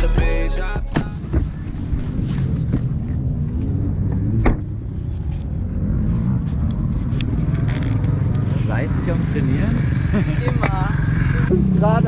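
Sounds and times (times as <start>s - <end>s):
dirt bike engines revving: 5.3s - 12.0s.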